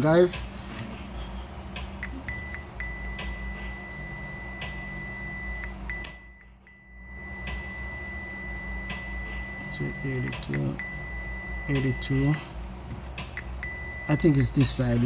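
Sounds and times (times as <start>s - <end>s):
multimeter continuity beep: 2.0s - 12.4s, 13.4s - 14.7s.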